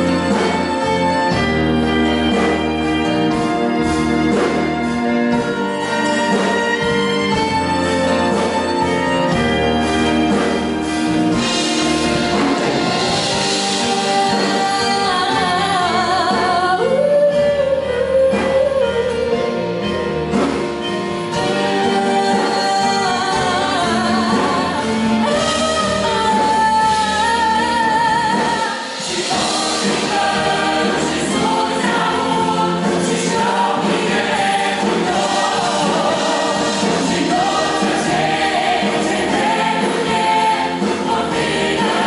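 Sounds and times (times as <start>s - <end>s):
guitars: 0.0s - 42.0s
violins: 0.0s - 42.0s
mixed choir singing: 21.5s - 26.6s, 27.5s - 42.0s.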